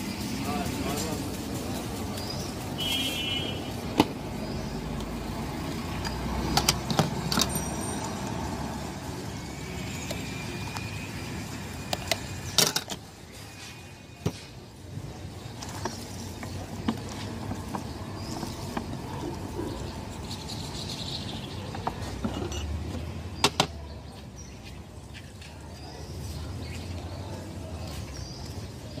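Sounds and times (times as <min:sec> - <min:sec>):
street traffic: 0:00.0 - 0:29.0
plastic bottles clicking and knocking: 0:15.5 - 0:19.5.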